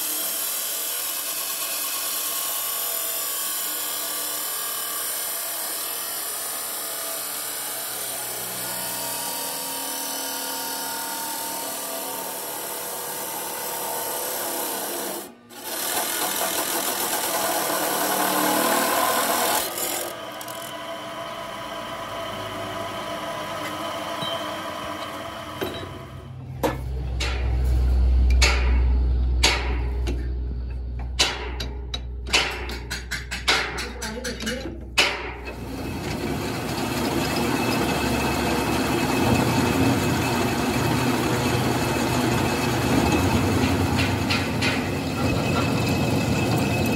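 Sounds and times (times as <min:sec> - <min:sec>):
saw disc grinding steel: 0:00.0 - 0:28.8, 0:29.4 - 0:46.9
low hum: 0:24.3 - 0:32.3
sharp metallic knocks: 0:25.6 - 0:35.6, 0:42.2 - 0:46.9.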